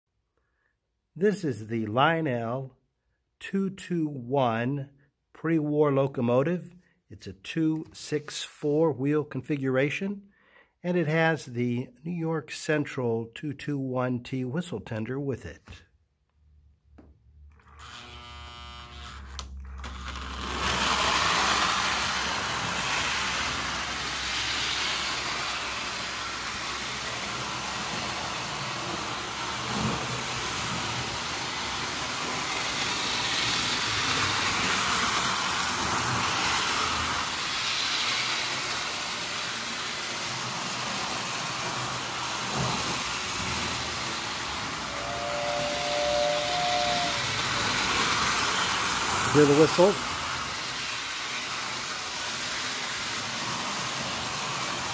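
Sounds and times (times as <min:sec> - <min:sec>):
toy train motor whirring: 0:17.5 - 0:54.9
two-note train whistle: 0:44.8 - 0:48.0.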